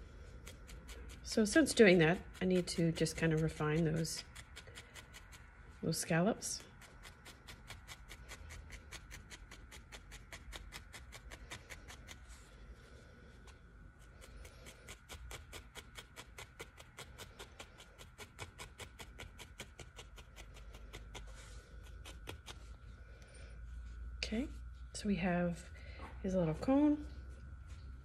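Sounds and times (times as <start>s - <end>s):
felting needle poking wool: 0.0s - 12.5s, 13.3s - 22.8s.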